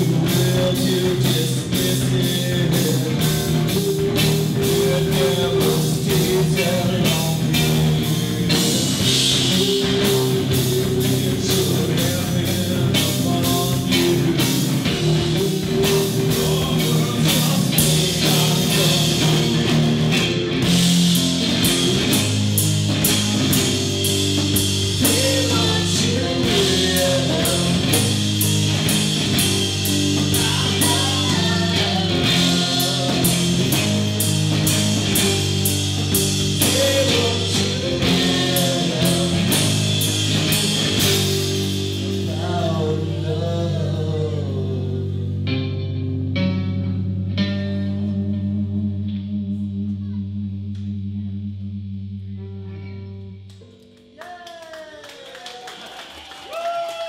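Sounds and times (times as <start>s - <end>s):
drum kit beat with cymbals: 0.0s - 43.1s
bass guitar: 0.0s - 54.2s
electric guitar: 0.0s - 54.7s.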